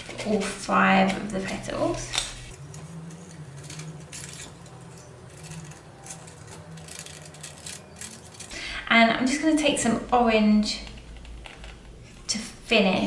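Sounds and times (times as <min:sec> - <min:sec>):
foil clicks and crinkles: 0:02.5 - 0:08.6
faint low hum: 0:02.5 - 0:09.0.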